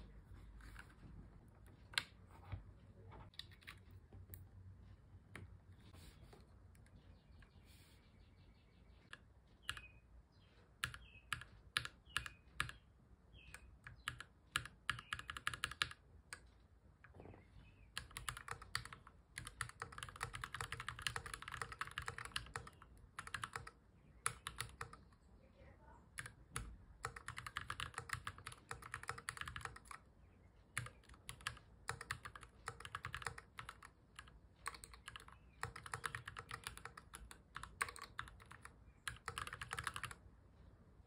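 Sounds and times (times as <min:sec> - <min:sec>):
mechanical keyboard typing: 0:09.1 - 0:09.9, 0:10.8 - 0:12.8, 0:13.4 - 0:16.5, 0:17.9 - 0:25.2, 0:26.1 - 0:30.1, 0:30.7 - 0:40.2.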